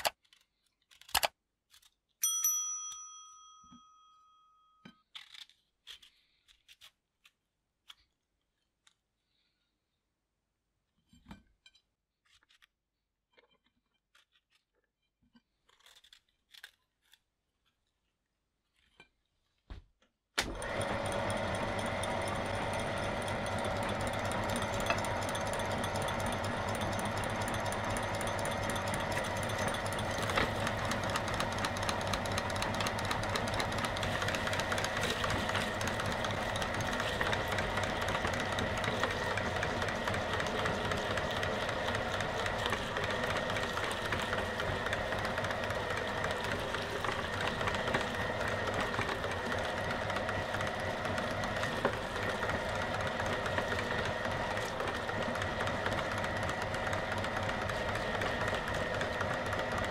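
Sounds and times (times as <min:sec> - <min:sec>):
metallic bell-like ring: 0:02.2 - 0:04.9
meat grinder motor running: 0:20.4 - 0:59.9.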